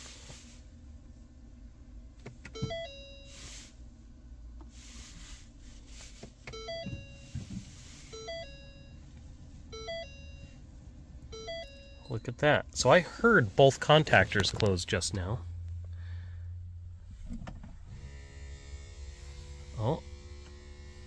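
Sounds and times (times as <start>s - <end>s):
three-note warning chime: 2.6s - 3.4s, 6.6s - 7.5s, 8.1s - 9.1s, 9.7s - 10.6s, 11.3s - 12.9s
dull clunks: 6.1s - 7.8s.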